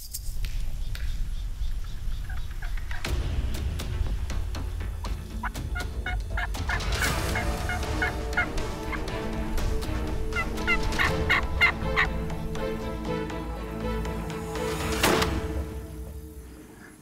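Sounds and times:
turkeys gobbling: 0:01.6 - 0:03.1, 0:05.4 - 0:12.8.

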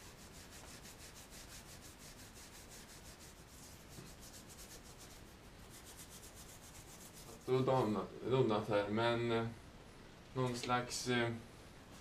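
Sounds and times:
cloth rag rubbing on metal: 0:00.0 - 0:08.0.

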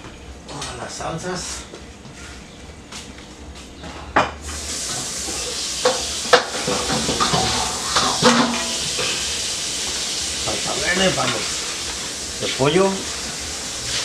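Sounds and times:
steady hiss: 0:04.4 - 0:14.0
dishes clinking and knocking: 0:05.8 - 0:09.3.

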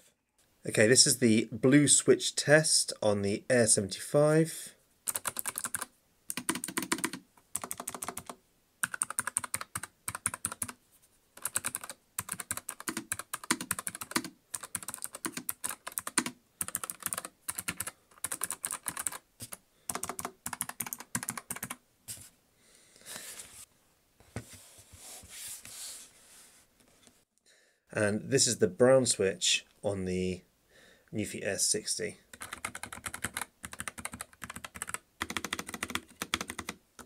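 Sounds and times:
mechanical keyboard typing: 0:05.1 - 0:10.8, 0:11.4 - 0:21.8, 0:32.3 - 0:36.8.

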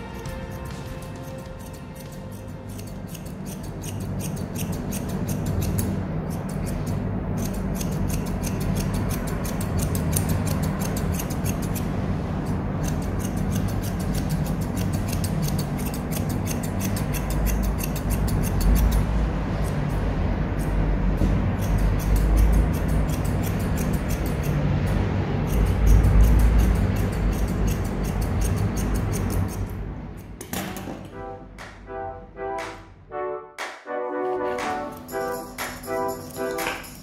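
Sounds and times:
background music: 0:00.0 - 0:04.0, 0:31.0 - 0:37.0
scissors snipping hair: 0:00.0 - 0:11.9, 0:12.8 - 0:19.8, 0:21.6 - 0:29.7.

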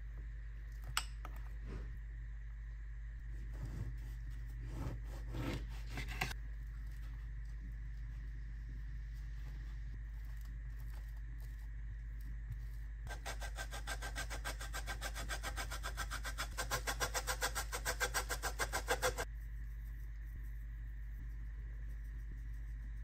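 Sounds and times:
cheese rasping on a grater: 0:13.1 - 0:19.3
spatula scraping on bread: 0:13.1 - 0:19.3.

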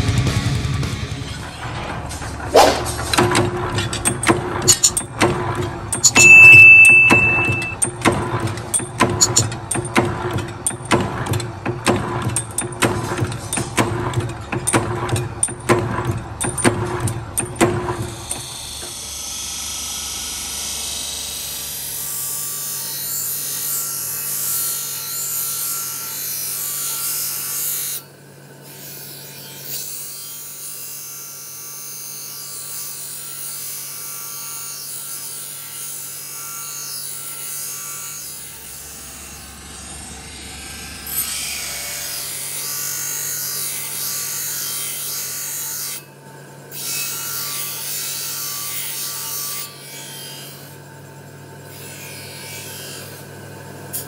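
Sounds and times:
steel grinding on wheel: 0:01.6 - 0:07.8.

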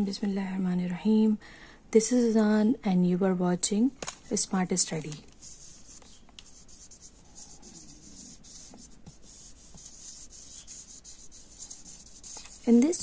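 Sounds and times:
marker writing on plastic sheet: 0:05.3 - 0:13.0.

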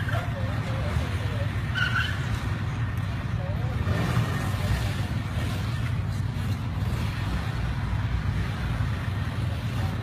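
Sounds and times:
small motorbike engines running: 0:00.0 - 0:10.0.

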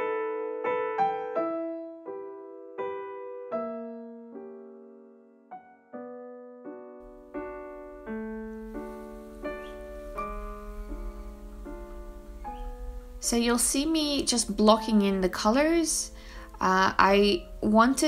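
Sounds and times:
gentle piano music: 0:00.0 - 0:18.0
faint low hum: 0:07.7 - 0:18.0.

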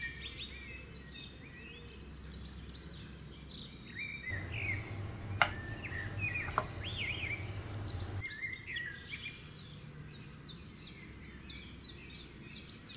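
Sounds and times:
birds chirping and singing: 0:03.9 - 0:09.2
low steady hum: 0:04.4 - 0:08.2.

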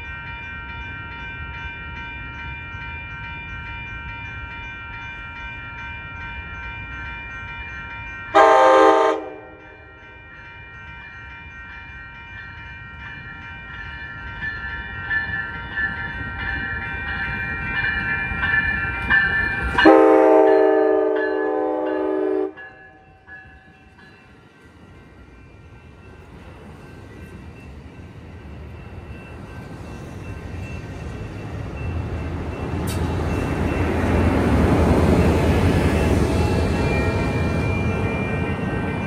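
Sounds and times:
diesel locomotive passing: 0:00.0 - 0:39.0
train horn blast: 0:08.4 - 0:09.6, 0:19.8 - 0:22.6
train cars rolling by: 0:13.6 - 0:39.0.

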